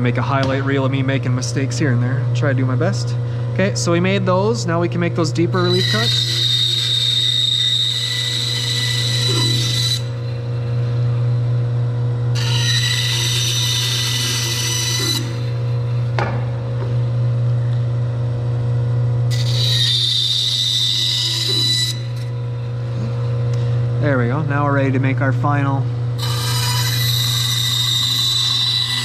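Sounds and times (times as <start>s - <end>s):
bandsaw running: 4.2s - 11.3s, 12.3s - 16.1s, 19.3s - 24.9s, 26.2s - 29.0s
bandsaw blade cutting wood: 5.6s - 10.3s, 12.4s - 15.6s, 19.3s - 22.4s, 26.2s - 29.0s.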